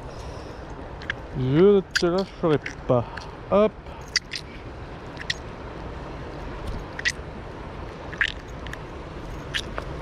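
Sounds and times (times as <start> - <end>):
river water rushing: 0.0 - 10.0
sharp water splashes: 4.0 - 5.6, 6.6 - 7.3, 7.9 - 8.8, 9.4 - 10.0.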